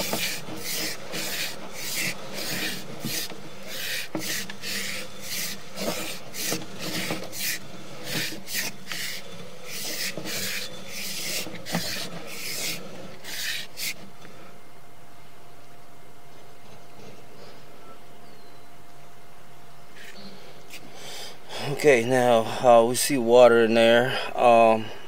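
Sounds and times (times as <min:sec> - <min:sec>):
cable rasping in pipe: 0:00.0 - 0:14.5.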